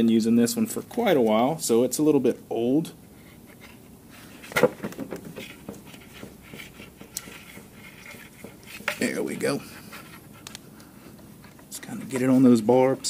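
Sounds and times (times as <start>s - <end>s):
hose handling noise: 3.6s - 12.6s
light clicks and scraping: 5.4s - 13.0s.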